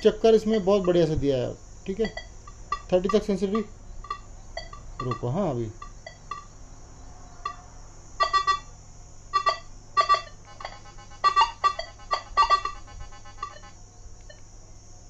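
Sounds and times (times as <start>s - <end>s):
metal detector beeping: 0.8s - 1.1s, 1.9s - 6.5s, 7.4s - 7.6s, 8.2s - 8.7s, 9.3s - 14.4s.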